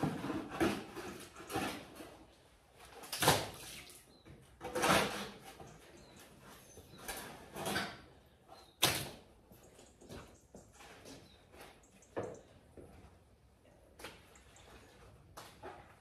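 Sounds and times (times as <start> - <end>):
shovel scraping wet concrete: 4.6 - 5.6.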